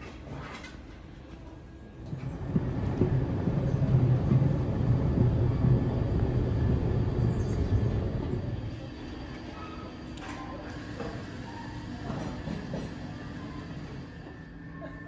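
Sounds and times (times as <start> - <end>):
moving walkway rumbling: 2.0 - 9.0.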